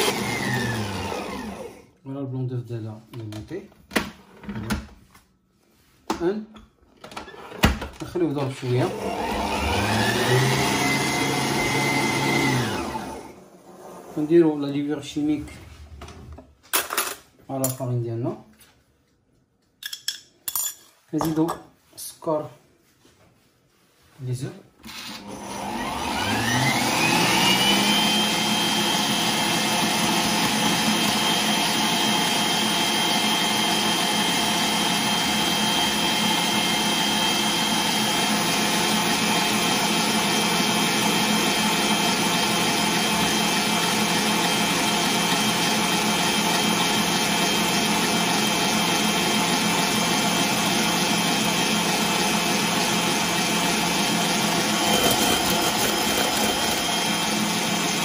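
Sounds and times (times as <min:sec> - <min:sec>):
stand mixer motor whine: 0:00.0 - 0:01.9, 0:08.6 - 0:13.6, 0:24.9 - 0:58.0.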